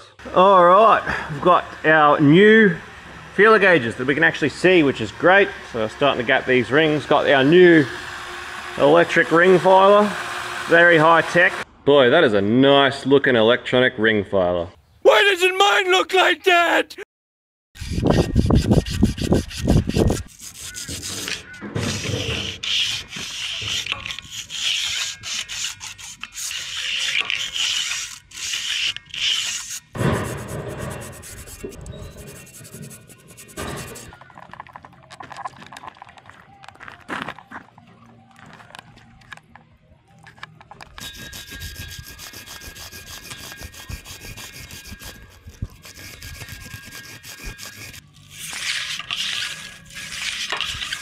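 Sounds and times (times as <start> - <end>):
piston ring filer grinding: 18.1 - 34.1, 41.0 - 51.0
abrasive wheel scraping metal: 18.1 - 34.2, 41.0 - 51.0.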